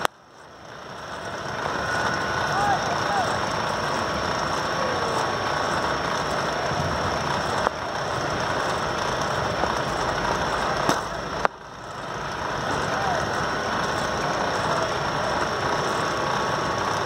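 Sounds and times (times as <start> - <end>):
rumbling background noise: 0.0 - 17.0.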